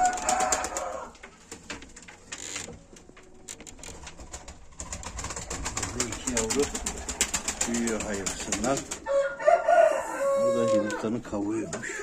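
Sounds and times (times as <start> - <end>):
scattered clicks and rustles: 1.1 - 9.0.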